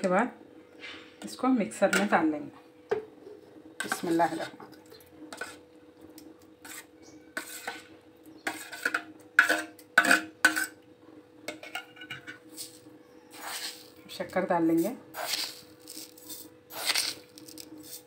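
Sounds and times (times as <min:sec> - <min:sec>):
metal spoon scraping steel plate: 0:05.3 - 0:05.6, 0:06.6 - 0:10.8, 0:11.5 - 0:14.0, 0:15.1 - 0:18.0.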